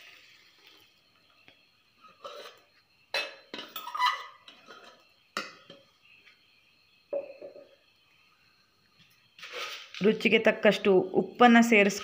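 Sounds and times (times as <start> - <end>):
spoon scraping steel jar: 2.0 - 5.1, 9.4 - 10.1.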